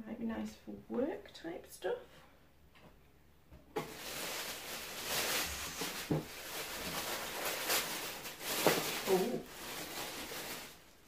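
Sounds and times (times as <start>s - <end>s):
tissue paper rustling and crinkling: 3.8s - 11.0s.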